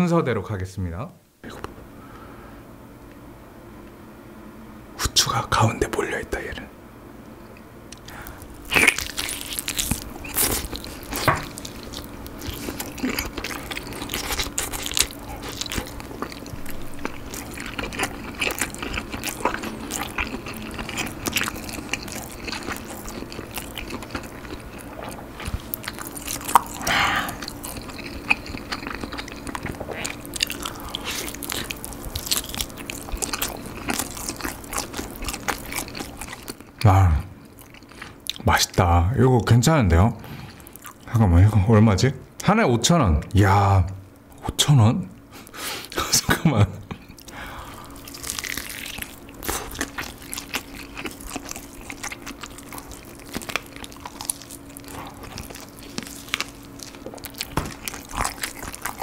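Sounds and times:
biting and chewing chicken: 0:07.9 - 0:38.5, 0:46.9 - 0:59.0.

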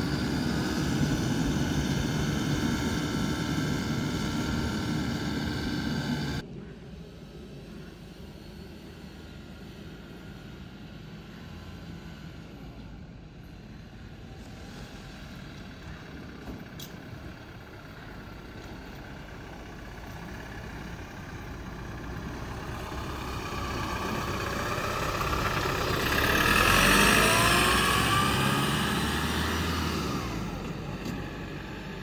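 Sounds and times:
truck driving past: 0:00.0 - 0:06.4, 0:13.6 - 0:32.0.

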